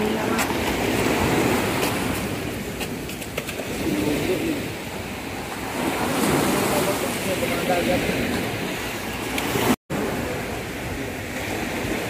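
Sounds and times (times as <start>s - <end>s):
small waves washing ashore: 0.0s - 12.0s.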